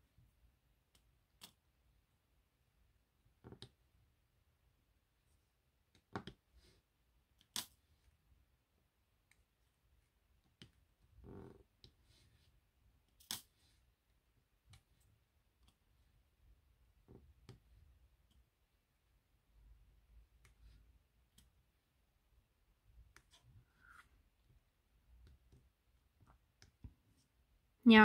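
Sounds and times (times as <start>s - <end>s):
faint clicks and taps of pen: 5.9s - 6.4s, 25.2s - 27.2s.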